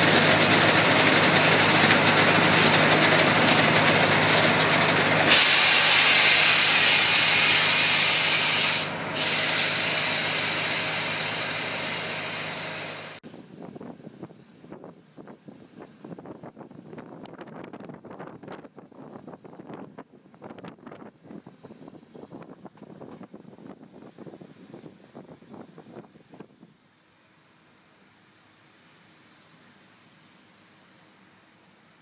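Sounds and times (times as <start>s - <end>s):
diesel railcar engine idling: 0.0s - 13.2s
loud air hiss: 0.0s - 13.2s.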